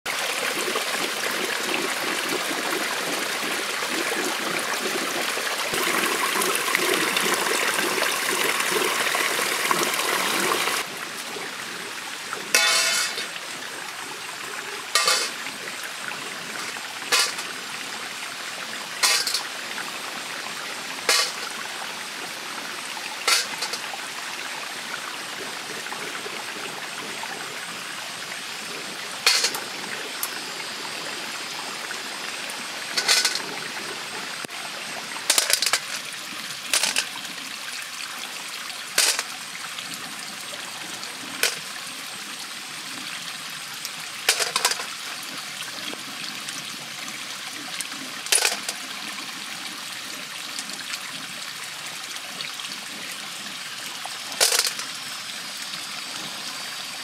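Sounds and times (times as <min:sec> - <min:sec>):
stream water rushing and trickling: 0:00.1 - 0:57.0.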